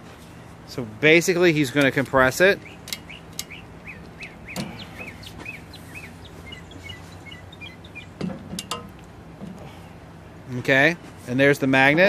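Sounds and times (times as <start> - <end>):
low background hum: 0.0 - 12.0
bird chirping: 2.4 - 8.5
metallic clicks and knocks: 8.2 - 9.6.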